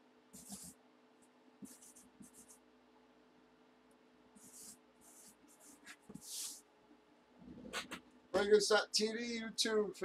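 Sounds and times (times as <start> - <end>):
marker pen scratching on cardboard: 0.4 - 0.8, 1.6 - 2.6, 4.4 - 6.6.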